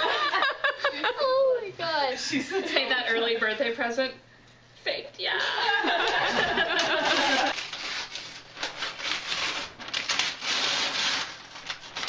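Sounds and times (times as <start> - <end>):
wrapping paper tearing: 7.1 - 12.0.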